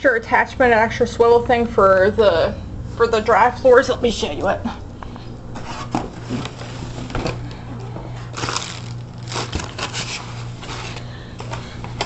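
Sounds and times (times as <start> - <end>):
steady low hum: 0.0 - 12.0
plastic handling scrapes and rustles: 8.2 - 11.1.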